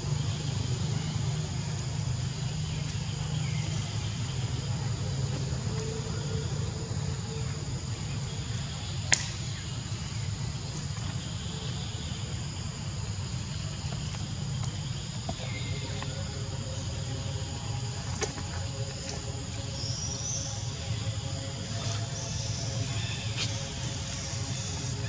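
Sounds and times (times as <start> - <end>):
high-pitched insect drone: 9.6 - 25.0.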